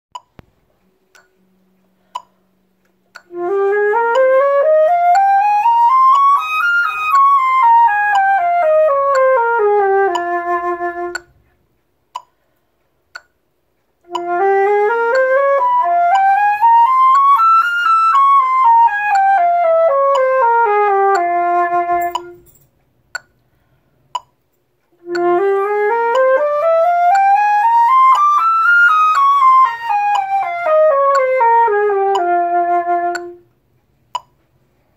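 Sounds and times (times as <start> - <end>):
flute playing a scale: 3.2 - 11.4, 14.0 - 22.5, 25.0 - 33.5.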